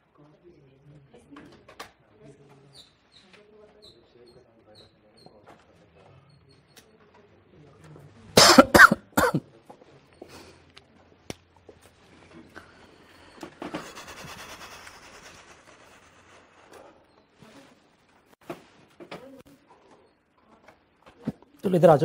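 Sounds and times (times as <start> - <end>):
person coughing: 8.4 - 9.4.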